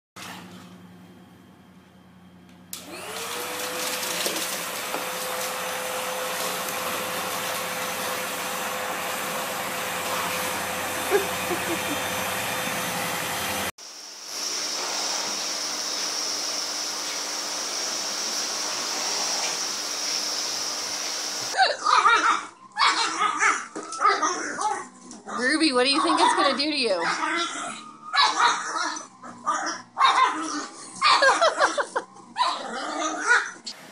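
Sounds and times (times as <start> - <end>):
vacuum cleaner running: 2.5 - 21.6
vacuum cleaner high whine: 2.7 - 21.6.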